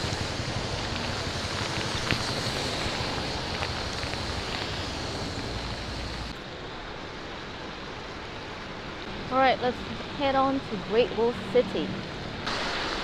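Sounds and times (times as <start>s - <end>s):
rain hissing: 0.0s - 6.8s, 12.0s - 13.0s.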